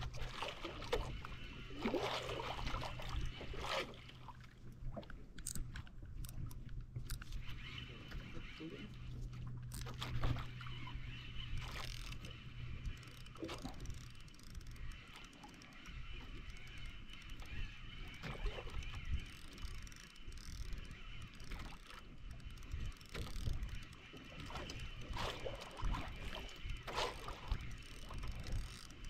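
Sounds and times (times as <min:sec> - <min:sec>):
boat engine hum: 0:00.0 - 0:29.0
water splashing against hull: 0:00.0 - 0:29.0.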